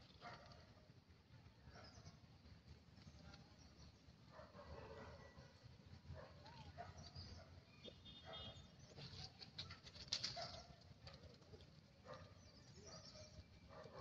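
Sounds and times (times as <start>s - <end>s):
soft clicks and crackles: 9.0s - 12.4s.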